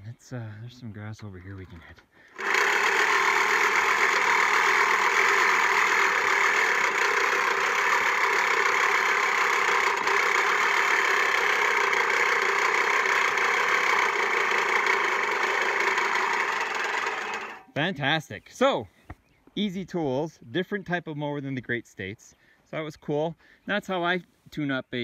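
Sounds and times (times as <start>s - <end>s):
reel mower blades whirring: 1.5s - 17.7s.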